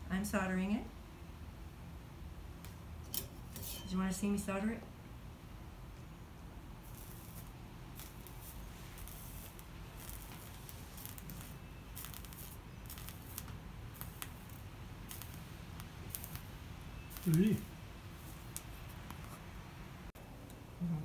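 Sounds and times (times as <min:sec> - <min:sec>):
soldering crackling and ticking: 0:06.8 - 0:19.5.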